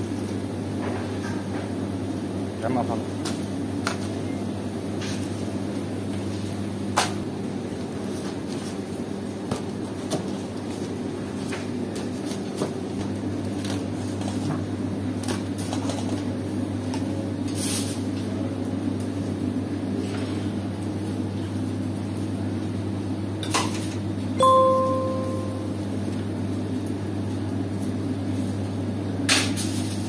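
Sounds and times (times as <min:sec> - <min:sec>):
kitchen machinery hum: 0:00.0 - 0:30.0.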